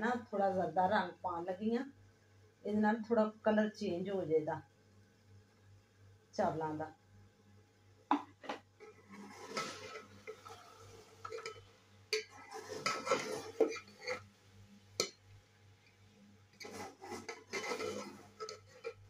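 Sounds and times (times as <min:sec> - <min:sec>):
metal skimmer scraping a pot: 0:08.8 - 0:14.3, 0:16.6 - 0:19.0.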